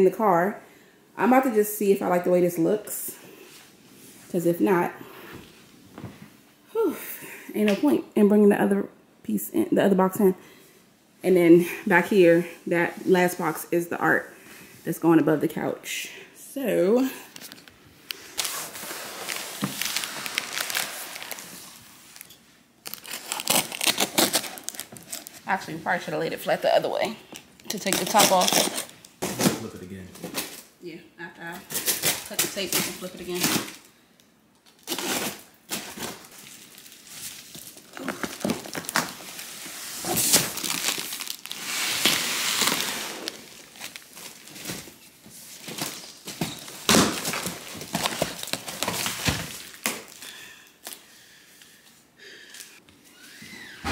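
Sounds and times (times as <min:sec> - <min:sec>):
tape and wrapping crinkling: 0:17.3 - 0:30.7, 0:31.5 - 0:52.8.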